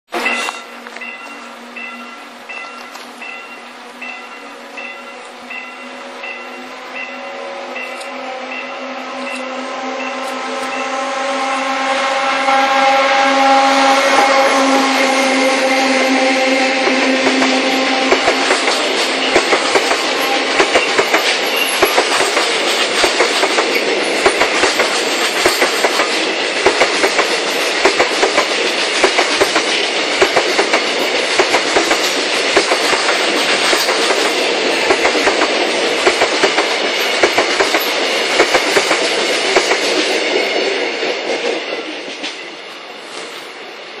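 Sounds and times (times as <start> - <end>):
train rumble: 0.1 - 44.0
train wheels clacking over rail joints: 13.7 - 42.6.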